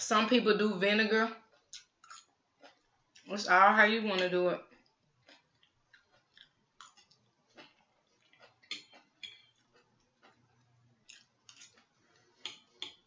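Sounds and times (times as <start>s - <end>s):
chewing: 1.5s - 3.3s, 4.7s - 13.0s.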